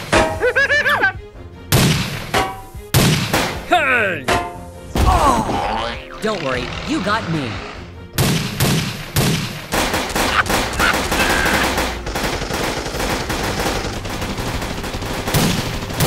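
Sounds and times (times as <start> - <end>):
rapid gunfire: 6.3 - 16.0.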